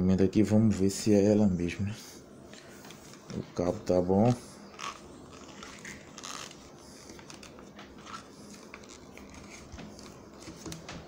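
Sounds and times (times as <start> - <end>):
faint clicks and rustles: 4.7 - 11.0.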